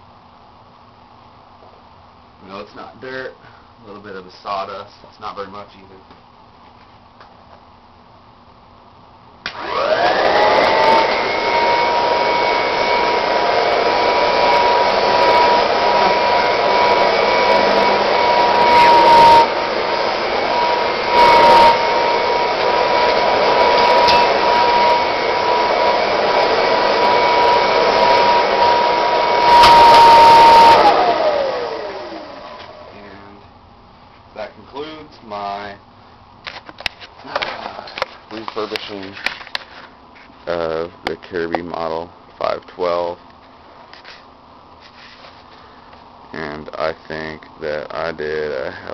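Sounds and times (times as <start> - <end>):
vacuum cleaner motor whine: 9.5 - 33.4.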